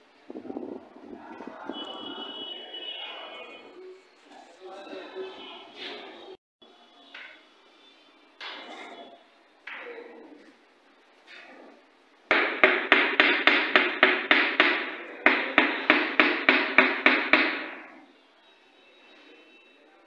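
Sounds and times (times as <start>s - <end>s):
hammer blows on wall panel: 12.3s - 18.1s.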